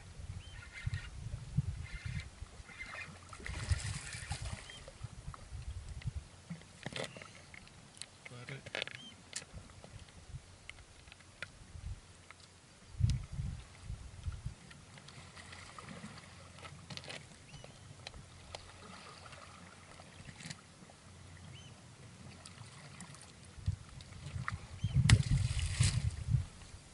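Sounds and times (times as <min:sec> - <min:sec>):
sea water lapping at shore: 0:01.8 - 0:05.5, 0:14.6 - 0:26.7
clicks and rustles of handling: 0:06.6 - 0:11.5.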